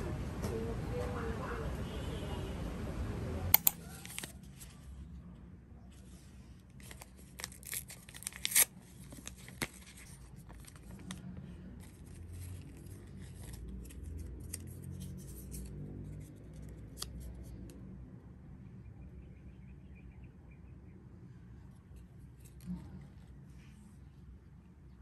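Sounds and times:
paper packet rustling: 3.6s - 4.8s, 6.0s - 15.7s.

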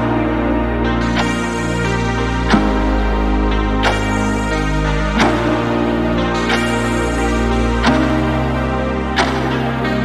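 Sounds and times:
sustained electronic chords: 0.0s - 10.0s
sharp percussive hit: 3.8s - 10.0s.

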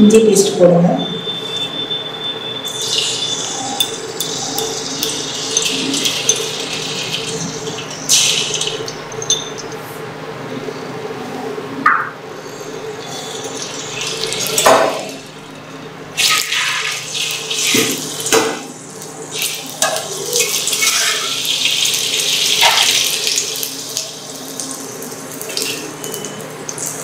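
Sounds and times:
spoon scraping and clinking pan: 3.8s - 9.8s.

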